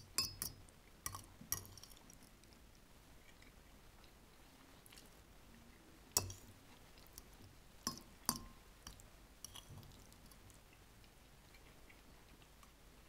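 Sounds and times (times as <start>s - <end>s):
utensil clinking against dish: 0.0s - 2.0s, 7.9s - 8.6s.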